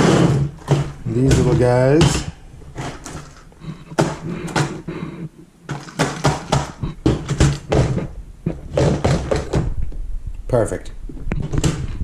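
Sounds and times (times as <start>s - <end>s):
plastic box clacks and knocks: 0.5s - 4.8s, 5.7s - 9.7s, 11.3s - 12.0s.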